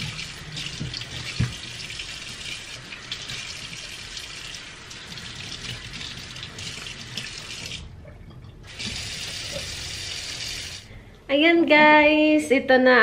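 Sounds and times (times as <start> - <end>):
water running from tap: 0.0 - 7.9, 8.6 - 10.9.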